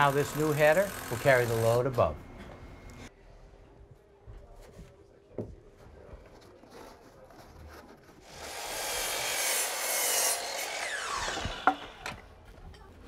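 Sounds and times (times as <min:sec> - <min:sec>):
miter saw cutting wood: 0:00.0 - 0:02.0, 0:08.2 - 0:12.3
saw blade spinning down: 0:08.3 - 0:12.3.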